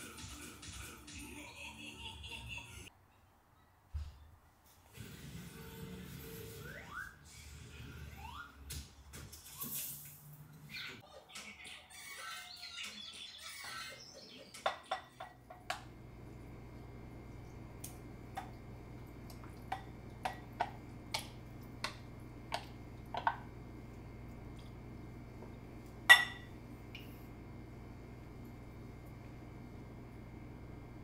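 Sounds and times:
wooden spoon tapping and scraping: 19.3 - 23.4
ceramic jar clinking: 26.1 - 26.5.

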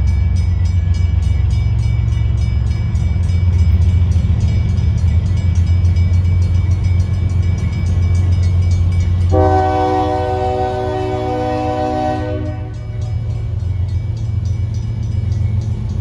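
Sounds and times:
diesel locomotive rumble: 0.0 - 16.0
train air horn chord: 9.3 - 13.0.

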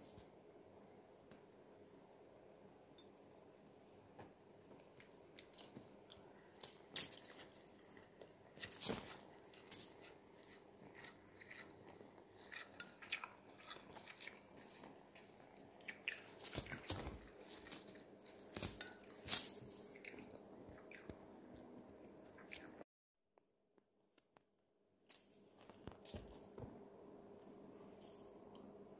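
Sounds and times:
rustling and scratching: 6.6 - 20.3.

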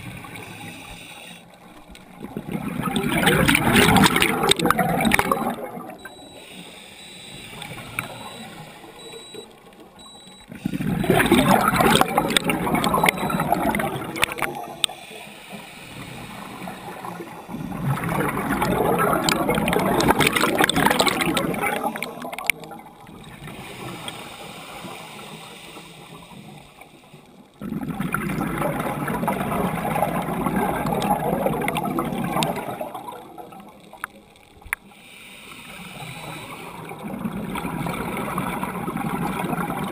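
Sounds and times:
quiet underwater crackling: 0.0 - 39.9
exhaled bubbles rushing: 2.0 - 6.3, 10.5 - 14.8, 16.0 - 23.9, 27.6 - 33.8, 36.8 - 39.9.

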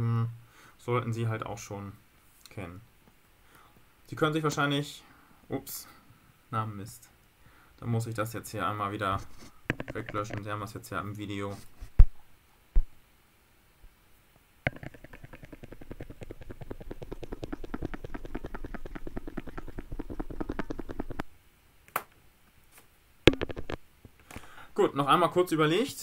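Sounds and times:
stylus scrubbing on tablet: 9.2 - 10.5, 14.7 - 21.2, 23.3 - 23.8.

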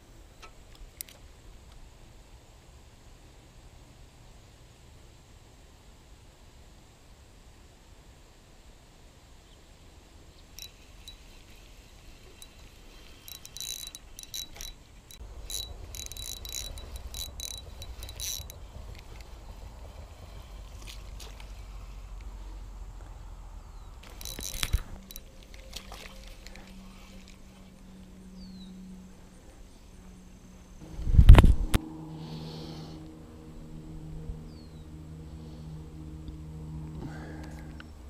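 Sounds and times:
fishing reel clicking: 10.6 - 21.6, 24.0 - 27.5
low rumble on microphone: 30.8 - 38.0.

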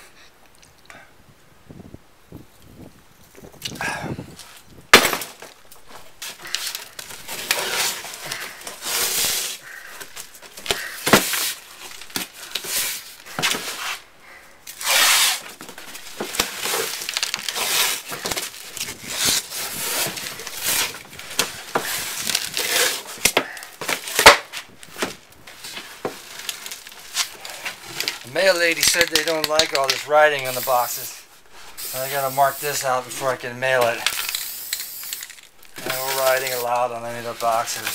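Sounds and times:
tape ripping off roll: 4.9 - 14.1, 14.7 - 31.0, 31.6 - 37.9
cardboard scraping and crinkling: 5.4 - 14.1, 14.7 - 30.8, 35.2 - 37.9.

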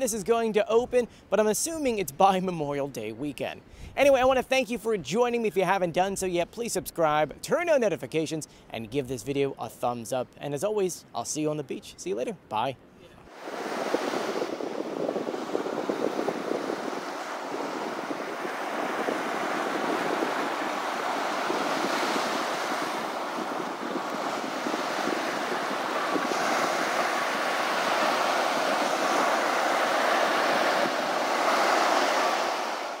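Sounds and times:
wind: 0.0 - 33.0
waves breaking on the beach: 13.3 - 33.0.

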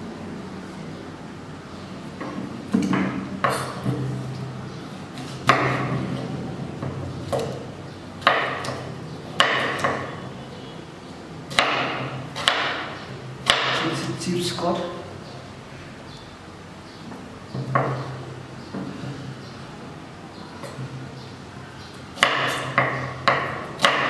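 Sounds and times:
knife chopping on wooden board: 5.4 - 5.9, 8.2 - 8.8, 9.4 - 10.1, 11.5 - 13.9, 22.2 - 24.0.

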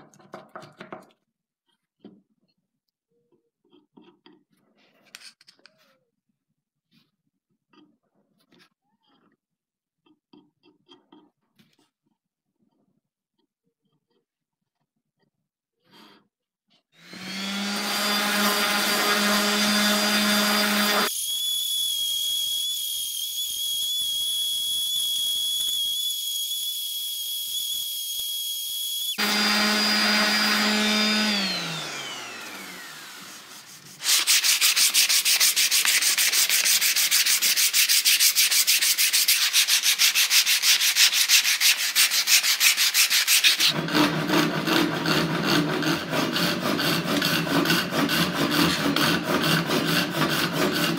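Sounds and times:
orbital sander running: 17.0 - 21.5, 28.4 - 34.5
hand rasping wood: 29.2 - 50.9.

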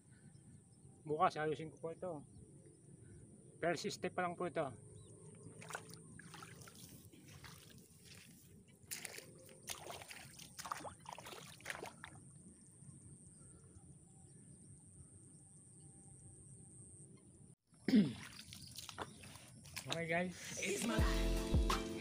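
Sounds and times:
water splashing: 5.5 - 12.2, 18.0 - 20.1.

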